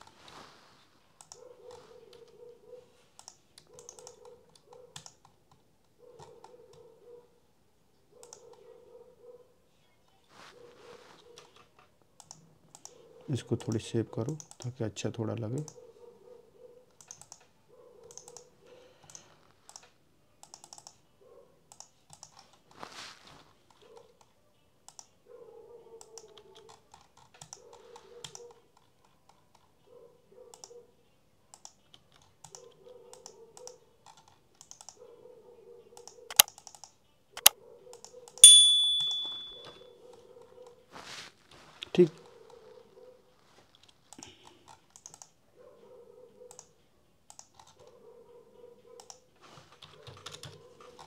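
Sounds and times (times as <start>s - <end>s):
keyboard and mouse clicks: 1.2s - 2.4s, 3.2s - 6.9s, 8.2s - 8.6s, 11.3s - 14.8s, 16.9s - 21.0s, 21.7s - 22.6s, 24.0s - 25.2s, 26.0s - 29.7s, 30.5s - 30.8s, 31.5s - 35.0s, 36.0s - 38.4s, 43.8s - 45.4s, 46.5s - 48.0s, 49.0s - 51.0s
bell ding: 38.4s - 39.8s.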